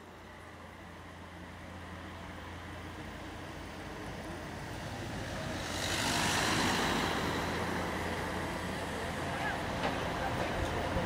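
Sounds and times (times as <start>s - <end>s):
low traffic hum: 0.0s - 11.0s
vehicle passing: 4.8s - 11.0s.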